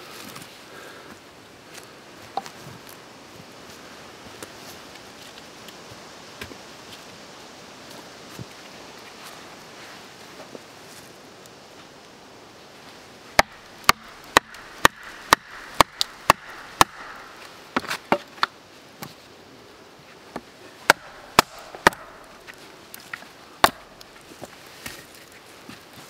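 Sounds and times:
wooden baton striking hatchet: 13.4s - 17.2s, 20.9s - 22.3s, 23.6s - 23.9s.

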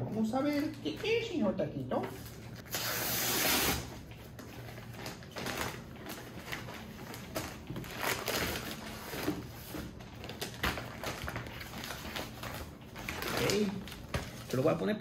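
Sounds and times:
mailer bag rustling: 3.5s - 14.8s.

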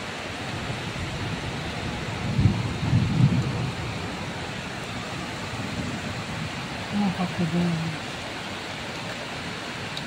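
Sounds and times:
heavy rain falling: 0.0s - 10.0s
thunder rumble: 0.6s - 7.5s.

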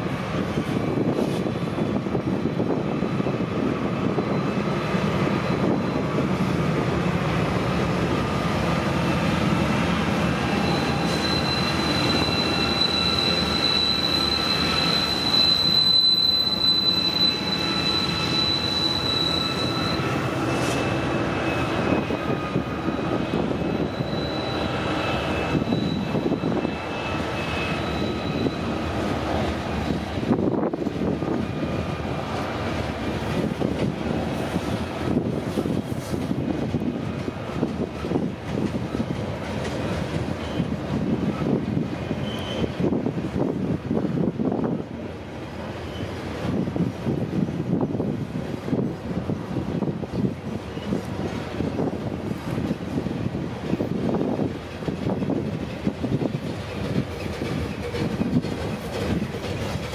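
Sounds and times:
train wheels rumbling on rail: 0.0s - 59.9s
high wheel squeal: 4.0s - 6.5s, 8.8s - 30.3s, 40.3s - 41.5s, 42.1s - 43.0s, 45.7s - 46.3s.

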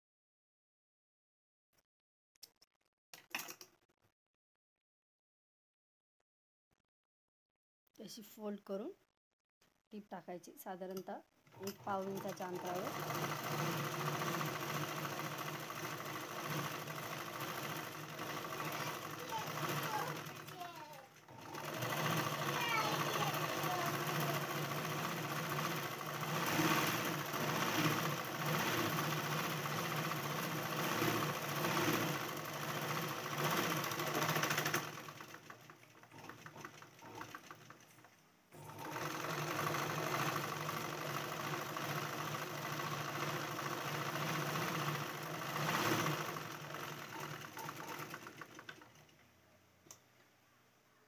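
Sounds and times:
sewing machine running: 11.4s - 49.2s.

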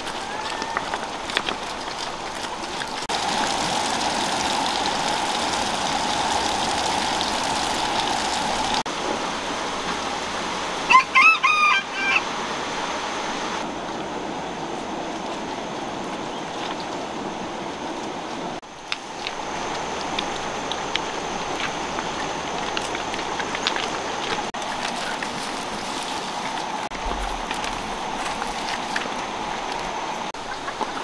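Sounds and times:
river running over stones: 0.0s - 10.9s, 12.3s - 31.0s
rooster crowing: 0.2s - 0.9s, 10.9s - 12.3s.

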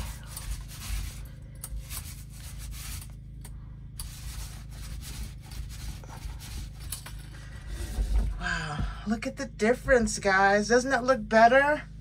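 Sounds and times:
paint roller rasping: 0.0s - 3.2s, 4.0s - 6.9s.

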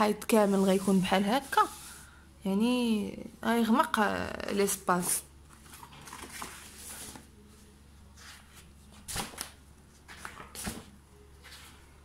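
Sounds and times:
pages turning and rustling: 5.5s - 7.4s, 8.1s - 12.0s.

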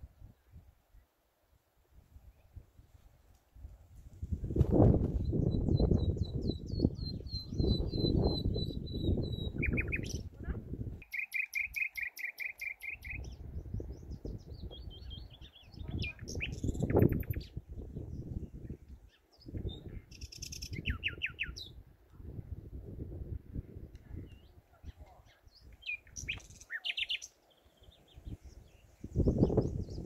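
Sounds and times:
nightingale singing: 5.2s - 10.3s, 11.0s - 21.8s, 24.2s - 30.0s.

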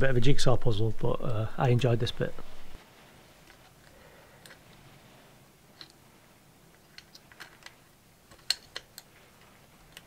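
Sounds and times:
small metal parts clicking: 6.7s - 9.1s.

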